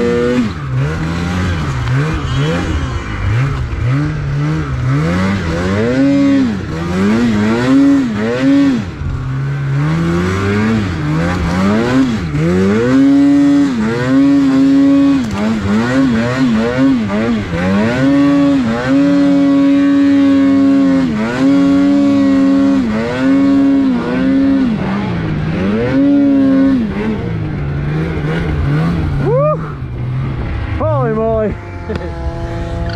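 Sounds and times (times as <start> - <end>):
snowmobile engine revving: 0.0 - 32.9
snowmobile engine idling: 26.7 - 32.9.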